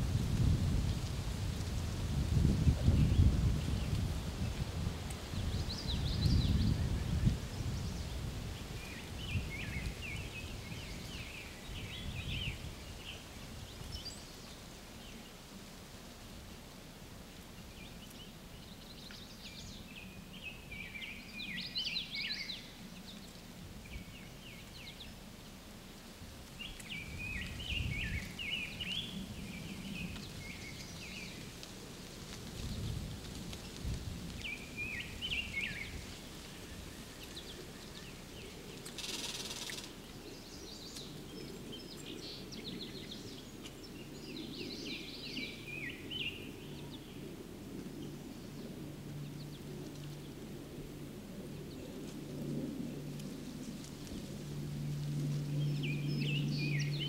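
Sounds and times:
songbirds chirping: 0.1s - 57.0s.

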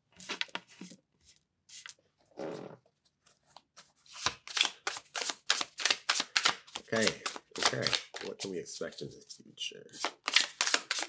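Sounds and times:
playing cards shuffling: 3.8s - 8.5s, 9.9s - 11.0s.

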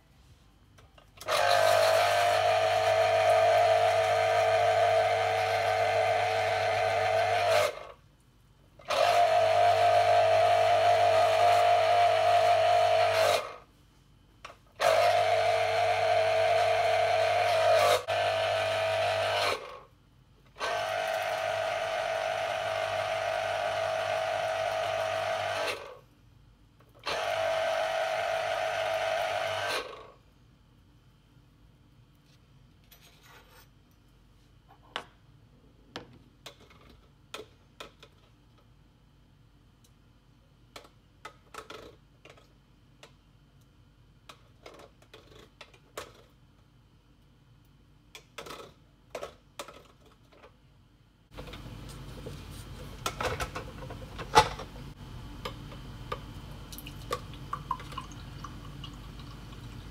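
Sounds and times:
citrus juicer motor whining: 1.2s - 7.9s, 8.8s - 13.6s, 14.8s - 19.8s, 20.6s - 26.0s, 27.0s - 30.2s.

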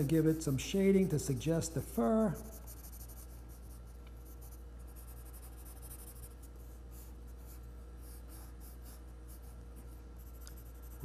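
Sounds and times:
low steady hum: 0.0s - 11.0s
pencil scratching on paper: 0.0s - 11.0s.

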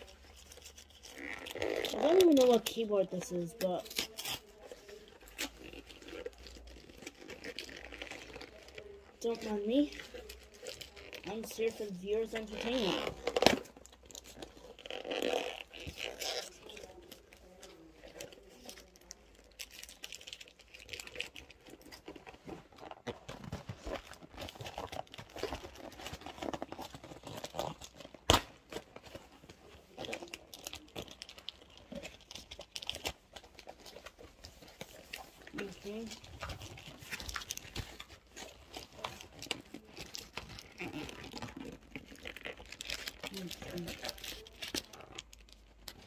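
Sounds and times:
packaging rustling and crinkling: 0.0s - 46.0s.

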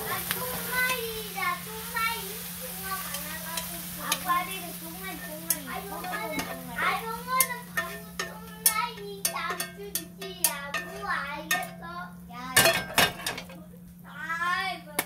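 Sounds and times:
voices talking in background: 0.0s - 12.7s
steady low hum: 0.0s - 15.0s
metal tongs clicking and scraping pan: 3.0s - 11.8s, 12.6s - 13.6s.

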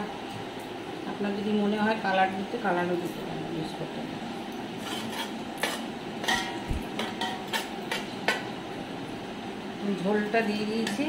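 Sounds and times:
metal spoon scraping a pot: 4.8s - 8.1s.

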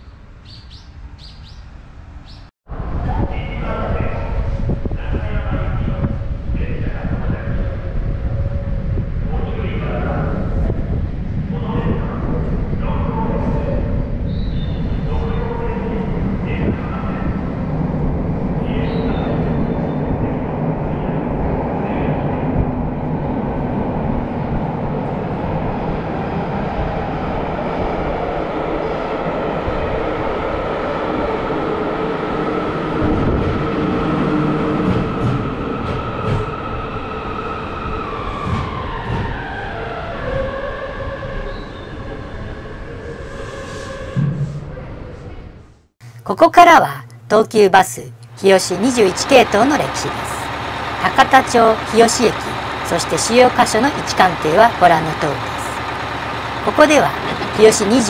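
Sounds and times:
train pulling into station: 0.3s - 46.4s, 47.0s - 58.0s
train motor whine braking: 48.2s - 58.0s.

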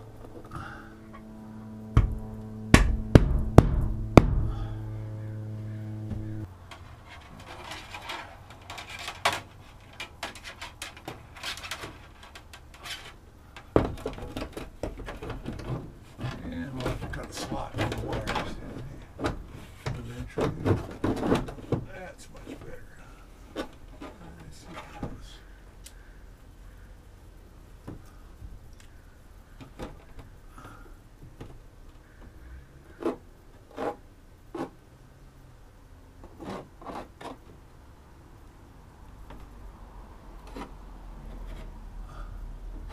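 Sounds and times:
plastic knocking on ceiling: 2.0s - 4.6s
plastic rubbing: 5.4s - 25.5s, 31.2s - 34.8s, 36.2s - 37.6s, 40.4s - 42.0s
small knocks: 6.1s - 22.8s.

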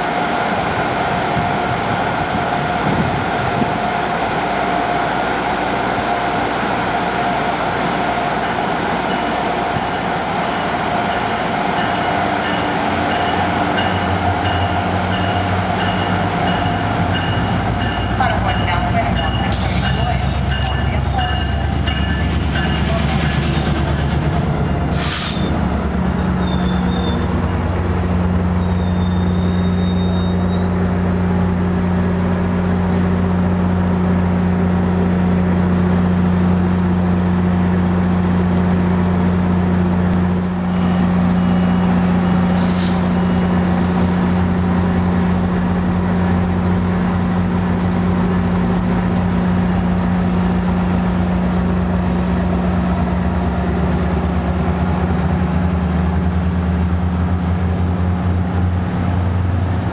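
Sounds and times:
diesel locomotive droning: 0.0s - 59.9s
short air hisses: 24.9s - 25.5s, 42.6s - 43.2s.

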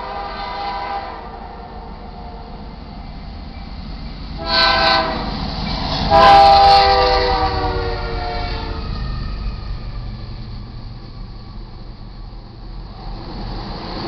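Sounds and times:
train air horn blasts: 0.0s - 2.5s, 4.4s - 5.4s, 6.0s - 8.9s
locomotive low rumble: 0.0s - 14.0s.

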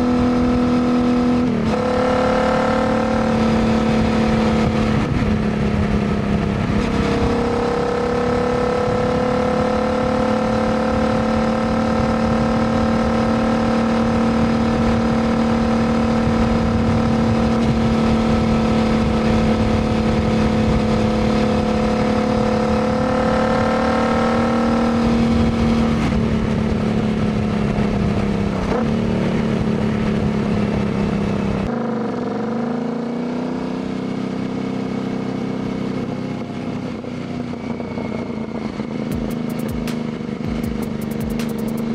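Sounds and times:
motorcycle engine cruising: 0.0s - 41.9s.

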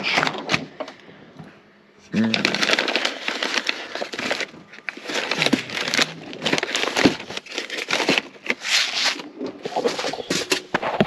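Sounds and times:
food packets crinkling: 2.2s - 11.0s.

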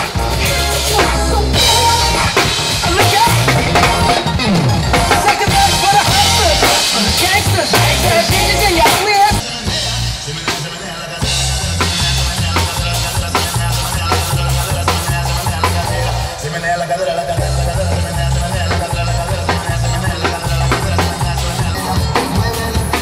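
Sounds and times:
pulsing bass: 0.0s - 10.3s, 11.2s - 16.4s, 17.4s - 23.0s
drum kit with cymbals: 0.0s - 16.6s, 17.4s - 23.0s
sliding pitch melody: 0.2s - 6.9s.

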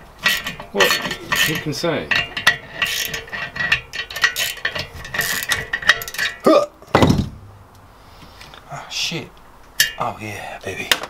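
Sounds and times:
tap wrench metal clicks and scrapes: 0.2s - 6.4s
loud metal knock: 6.9s - 7.5s.

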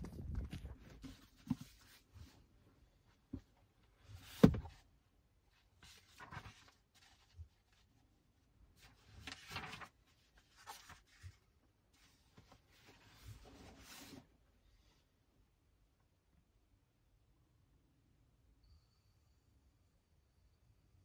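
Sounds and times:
book pages rustling: 0.0s - 2.4s, 5.8s - 8.0s, 8.8s - 14.2s.

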